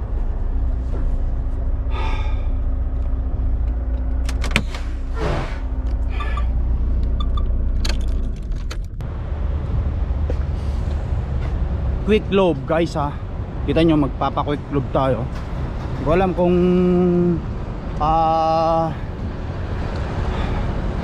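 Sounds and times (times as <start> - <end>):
diesel truck engine idling: 0.0 - 7.7.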